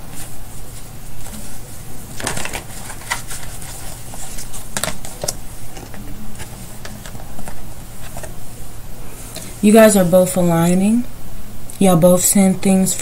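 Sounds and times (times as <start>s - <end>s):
steady low hum: 0.0s - 13.0s
cards clicking and rustling: 2.1s - 8.4s.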